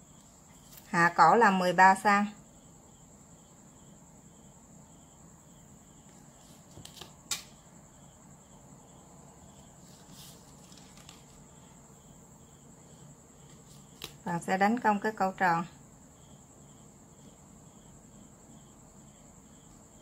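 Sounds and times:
paper rustle: 6.4 - 7.5, 9.8 - 11.6, 13.4 - 14.2.

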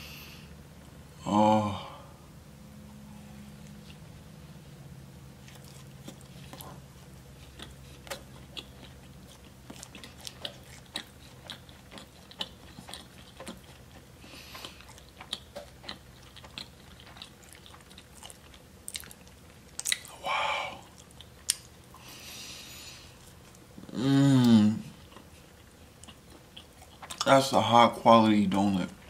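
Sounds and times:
person chewing wetly: 5.2 - 27.7.

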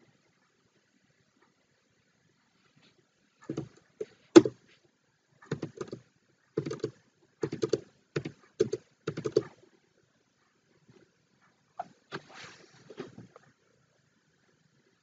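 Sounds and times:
computer keyboard keystrokes: 5.5 - 6.0, 6.6 - 9.6.

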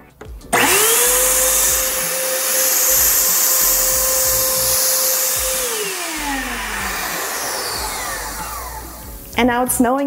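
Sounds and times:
snow machine fan motor whine: 0.5 - 9.4.

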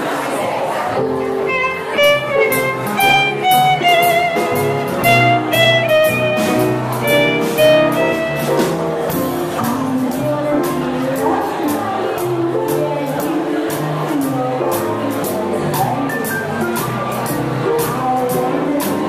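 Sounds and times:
upright bass notes: 1.0 - 19.0
violin melody: 1.2 - 9.1
steady drum beat: 1.4 - 19.0.

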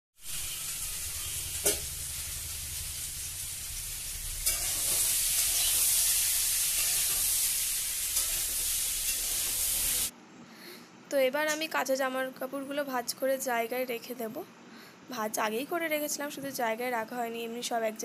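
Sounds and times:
vegetables sizzling in a wok: 0.2 - 10.1.

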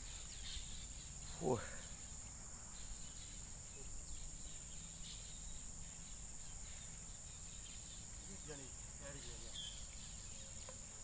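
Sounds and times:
faint background hiss: 0.0 - 11.0
insects chirring: 0.0 - 11.0.

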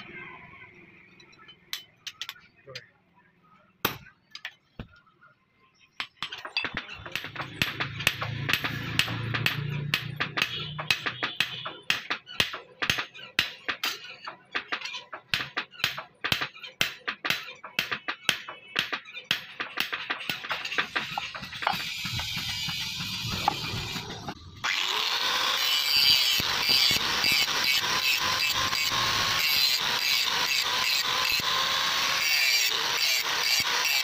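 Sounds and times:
hammer striking metal on anvil: 6.0 - 14.7.

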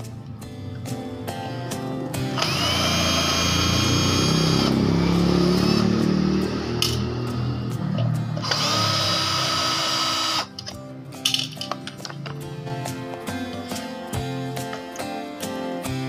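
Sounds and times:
cordless drill whining: 2.3 - 4.8, 8.4 - 10.6.

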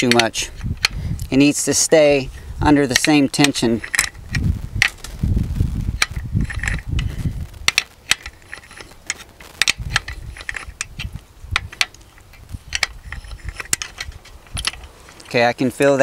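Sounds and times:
wrench ratcheting clicks: 0.0 - 2.0, 2.6 - 5.0, 6.0 - 15.4
low rumble: 4.0 - 15.0.

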